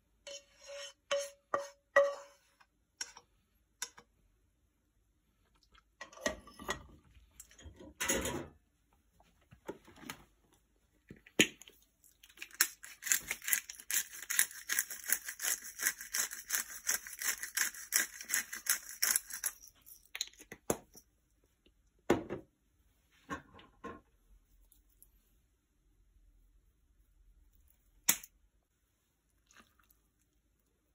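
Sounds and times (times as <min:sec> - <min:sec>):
pepper mill grinding: 0:12.2 - 0:20.4.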